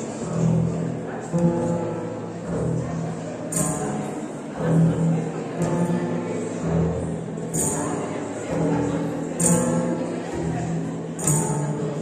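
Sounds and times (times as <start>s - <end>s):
bowed double bass notes: 0.0s - 12.0s.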